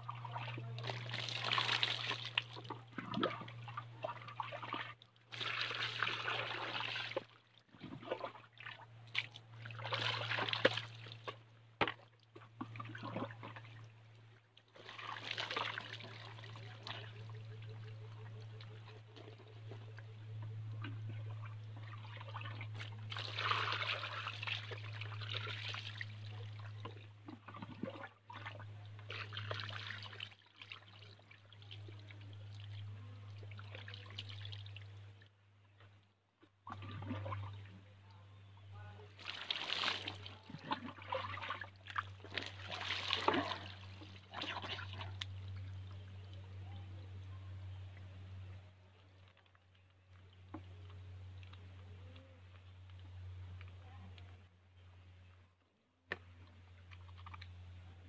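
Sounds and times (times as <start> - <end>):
water pouring and splashing: 0.0 - 13.8, 14.7 - 17.2, 20.8 - 34.9, 39.1 - 45.6.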